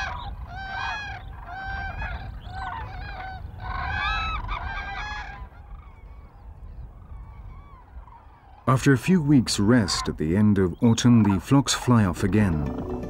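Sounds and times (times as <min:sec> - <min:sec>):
cranes trumpeting calls: 0:00.0 - 0:10.4.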